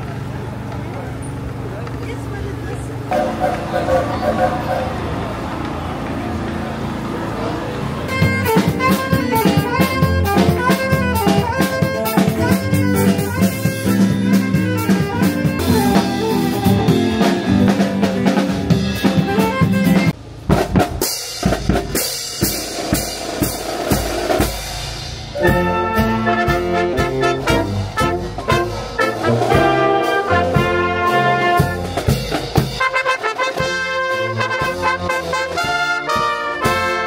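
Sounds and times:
saxophone melody: 0:03.1 - 0:05.2, 0:08.1 - 0:20.2, 0:25.3 - 0:37.0
saxophones and clarinets band: 0:03.1 - 0:05.3, 0:07.8 - 0:20.2, 0:25.3 - 0:37.0
drum kit: 0:08.1 - 0:37.0.

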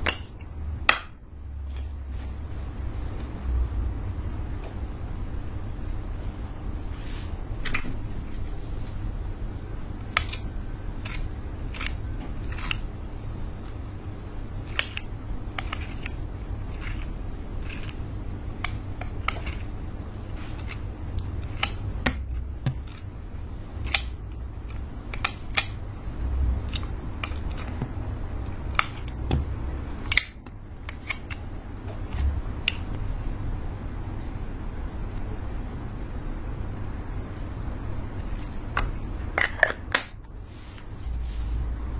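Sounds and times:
low steady hum: 0:00.0 - 0:41.9
blade scraping lipstick: 0:10.2 - 0:12.9, 0:14.7 - 0:18.0, 0:18.6 - 0:19.7.

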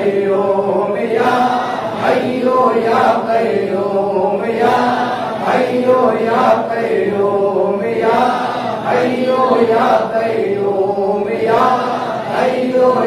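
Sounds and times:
men chanting devotional phrase: 0:00.0 - 0:13.0.

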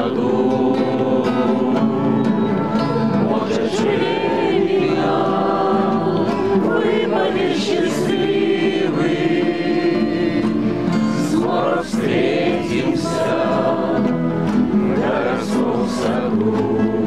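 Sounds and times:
men singing together: 0:00.0 - 0:02.5, 0:03.1 - 0:17.0
strummed acoustic guitars: 0:00.0 - 0:17.0.

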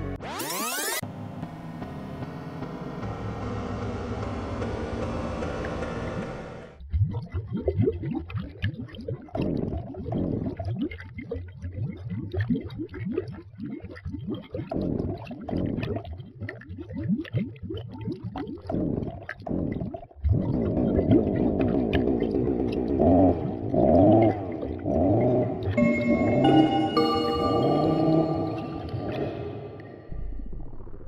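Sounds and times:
water bubbling and gurgling: 0:06.8 - 0:27.3.

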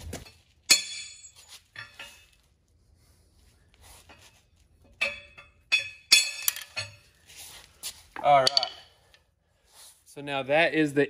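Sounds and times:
metal-on-metal knocks ringing: 0:08.3 - 0:08.9.

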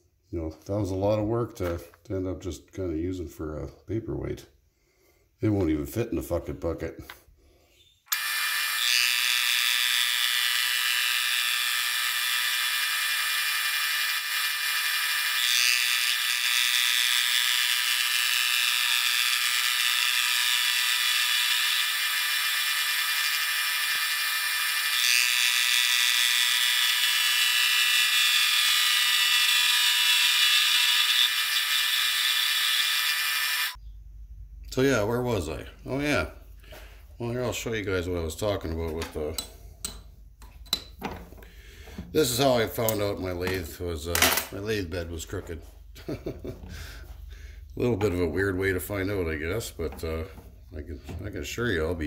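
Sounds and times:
metal lathe gear whine: 0:08.1 - 0:33.8.

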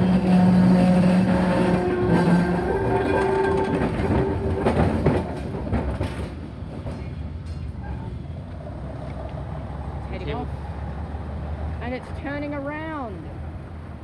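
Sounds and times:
tram wheels clicking over rail joints: 0:00.0 - 0:10.4.

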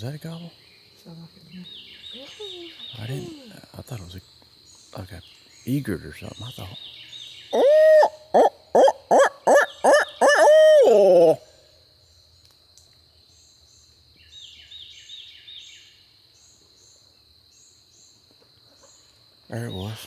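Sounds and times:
faint distant bird calls: 0:00.0 - 0:20.0
loud owl hoot call: 0:07.5 - 0:11.6.

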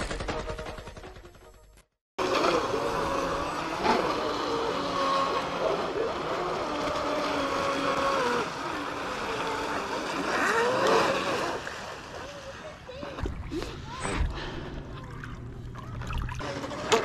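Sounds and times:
electric motors whining: 0:02.2 - 0:17.0.

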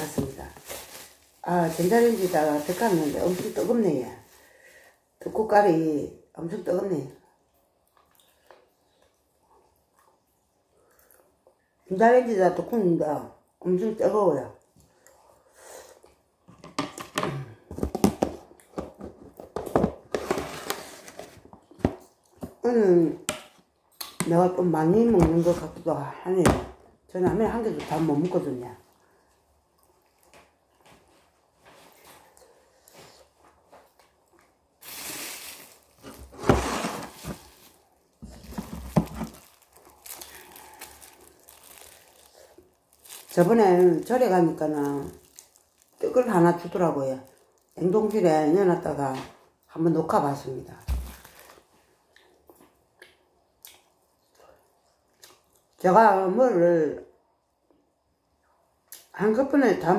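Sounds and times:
plastic wrapping crinkling: 0:00.0 - 0:04.8, 0:34.8 - 0:48.5, 0:50.8 - 0:51.7
rice cake being chewed: 0:07.8 - 0:11.6.

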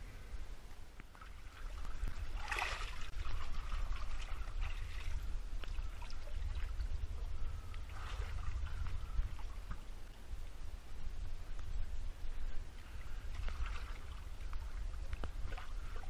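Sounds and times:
seawater splashing: 0:01.1 - 0:10.2, 0:12.7 - 0:16.0
water drips: 0:12.8 - 0:16.0.

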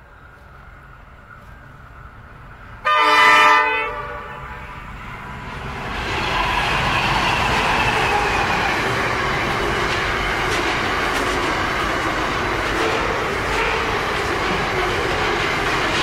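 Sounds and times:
train rumbling past: 0:00.0 - 0:16.0
locomotive horn blast: 0:02.8 - 0:05.0
train wheels clattering: 0:05.7 - 0:16.0.

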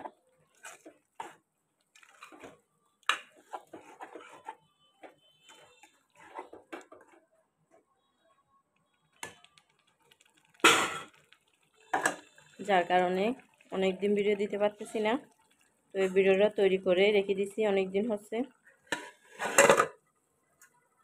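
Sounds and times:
spoon stirring meat in pot: 0:00.0 - 0:04.6.

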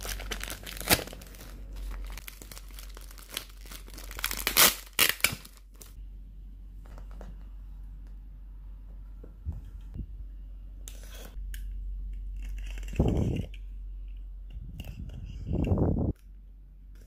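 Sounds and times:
plastic wrap crinkling: 0:00.0 - 0:06.0.

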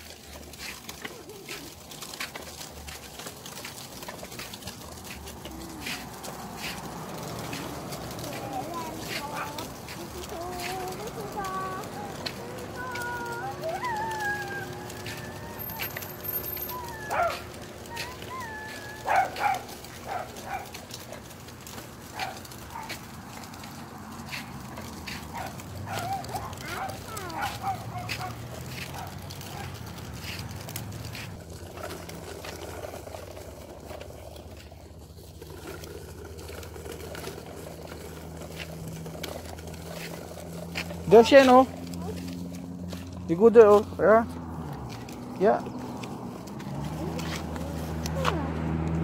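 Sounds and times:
bike training wheels rolling on concrete: 0:00.0 - 0:49.0
dog barking: 0:16.9 - 0:18.1, 0:19.0 - 0:20.8, 0:22.2 - 0:23.0, 0:25.3 - 0:29.8.

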